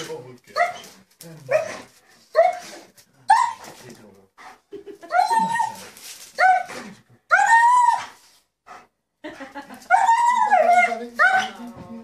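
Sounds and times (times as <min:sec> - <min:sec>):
dog whining: 0:05.0 - 0:08.3, 0:09.9 - 0:11.7.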